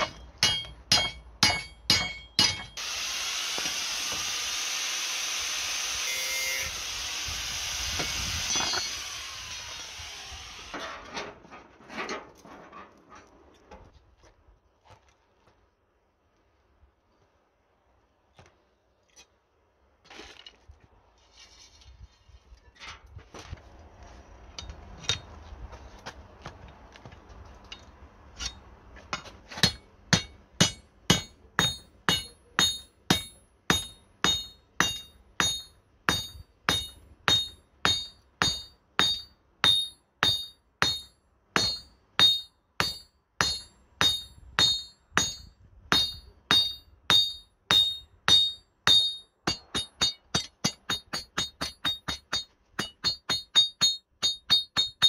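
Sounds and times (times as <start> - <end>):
hammer striking anvil: 0.0 - 2.8, 29.2 - 55.0.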